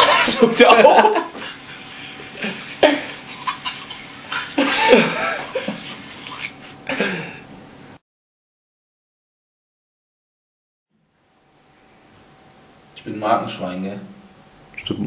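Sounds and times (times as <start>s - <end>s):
young men laughing: 0.0s - 7.4s.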